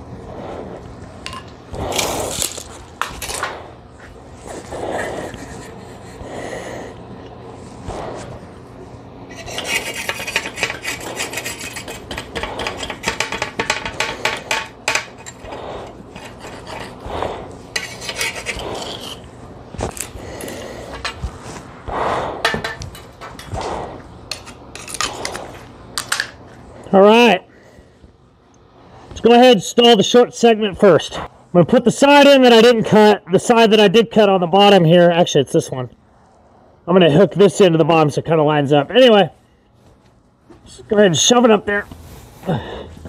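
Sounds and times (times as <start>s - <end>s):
knife sawing through insulation: 9.3s - 13.4s, 15.2s - 21.0s.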